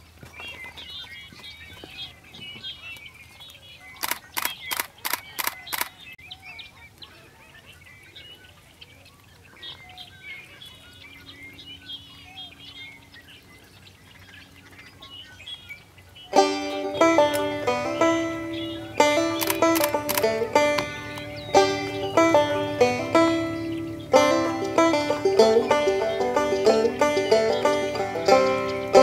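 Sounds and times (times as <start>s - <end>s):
small birds chirping: 0.0s - 29.0s
camera shutter burst clicks: 4.0s - 6.0s, 19.4s - 20.4s.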